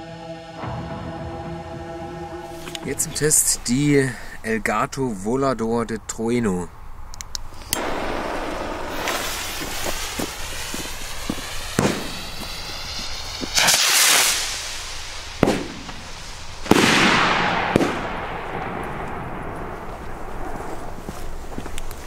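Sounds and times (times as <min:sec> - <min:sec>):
long rolling echo: 0:00.0 - 0:06.4, 0:07.7 - 0:22.0
rocket hissing as it climbs: 0:07.5 - 0:16.7
loud firework bangs: 0:07.7 - 0:21.6.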